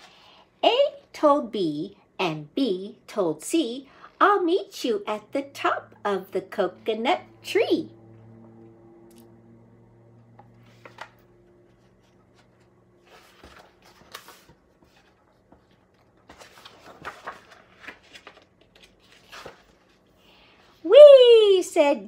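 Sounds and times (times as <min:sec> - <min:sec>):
book pages rustling: 0:10.4 - 0:20.2.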